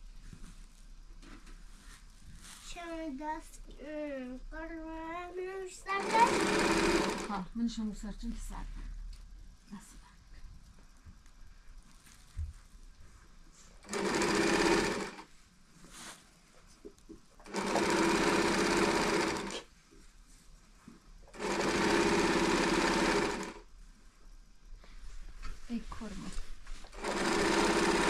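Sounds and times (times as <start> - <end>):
sewing machine stitching: 5.9 - 7.4, 13.8 - 15.3, 17.4 - 19.7, 21.3 - 23.6, 26.9 - 28.0.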